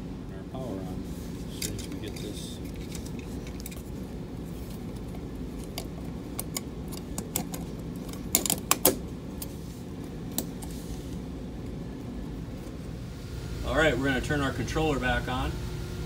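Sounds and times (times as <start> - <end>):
steady low hum: 0.0 - 16.0
small metal parts clicking: 5.6 - 9.5.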